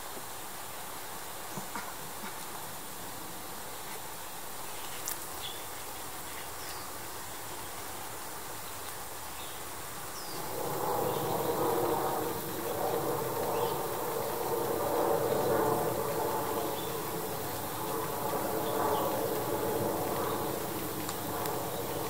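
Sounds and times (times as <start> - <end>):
steady hiss: 0.0 - 22.0
low droning hum: 10.3 - 22.0.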